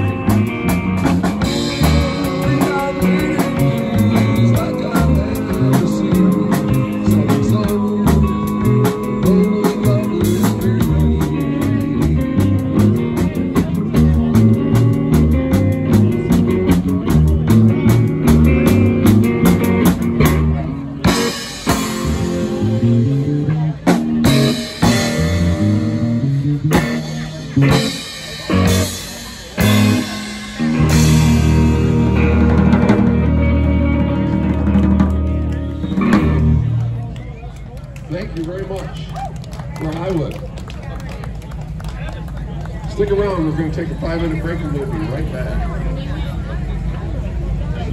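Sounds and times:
drum kit: 0:00.0 - 0:36.8
electric guitar: 0:00.0 - 0:37.3
electric bass: 0:00.0 - 0:47.9.

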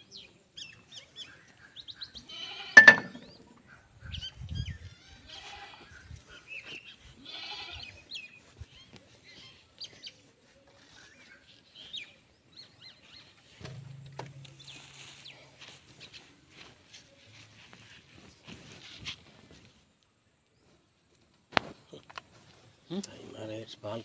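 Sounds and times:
small birds chirping: 0:00.0 - 0:17.4
farm animal bleating: 0:02.2 - 0:03.0, 0:04.9 - 0:06.0, 0:06.9 - 0:08.1.

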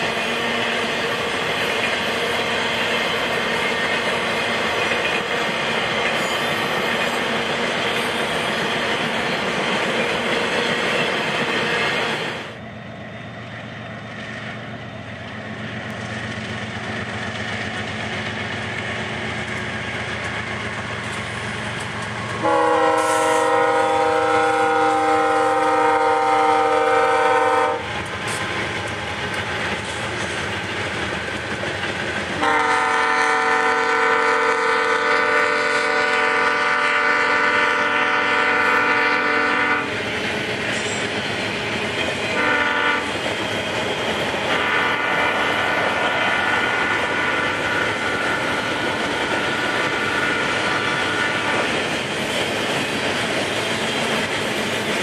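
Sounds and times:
diesel locomotive engine rumble: 0:00.0 - 0:55.0
train wheels on rail: 0:00.0 - 0:55.0
locomotive air horn chord: 0:22.4 - 0:27.8, 0:32.4 - 0:39.9, 0:42.4 - 0:43.1.

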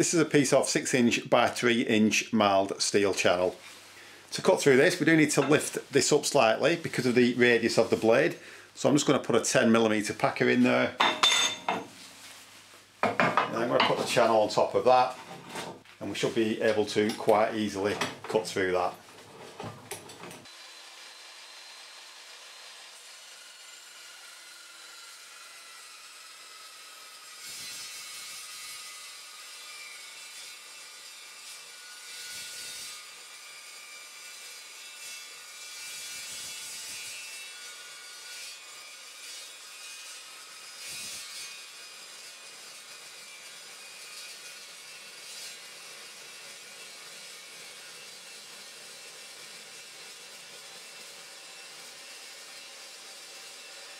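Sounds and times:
chop saw cutting metal: 0:04.4 - 0:08.6, 0:20.4 - 0:53.9.

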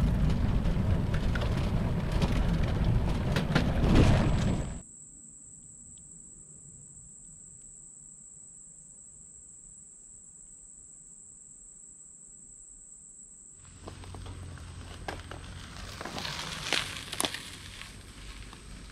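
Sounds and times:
low rumble with crackles: 0:00.0 - 0:04.8, 0:13.6 - 0:18.9
insects droning: 0:00.0 - 0:18.9.

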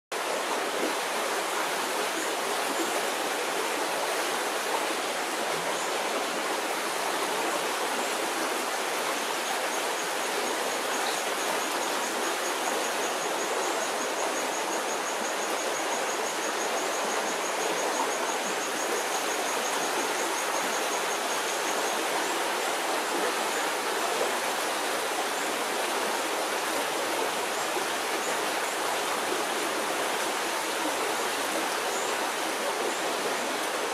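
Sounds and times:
stream flowing over rocks: 0:00.1 - 0:33.9.

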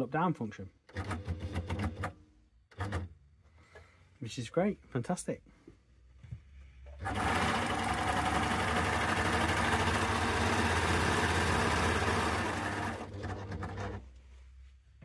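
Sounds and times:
sewing machine stitching: 0:00.9 - 0:03.1, 0:07.0 - 0:14.1.

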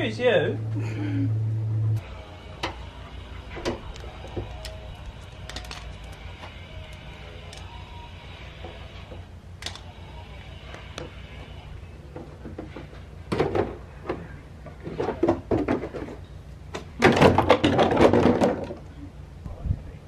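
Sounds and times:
plastic rattling and knocking: 0:14.8 - 0:16.2, 0:17.0 - 0:18.8.

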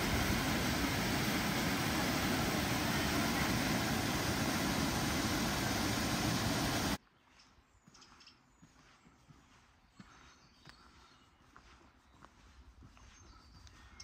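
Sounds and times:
waterfall rushing over rocks: 0:00.0 - 0:07.0.

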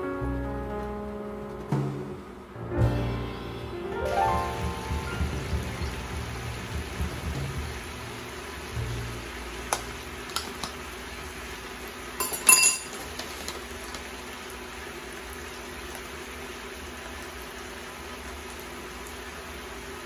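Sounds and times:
spoon clinking containers: 0:12.2 - 0:13.6.

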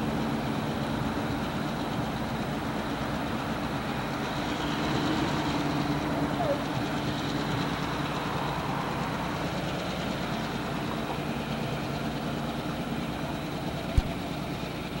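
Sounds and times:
distant diesel locomotive engine: 0:00.0 - 0:15.0
sharp click: 0:14.0 - 0:14.2.

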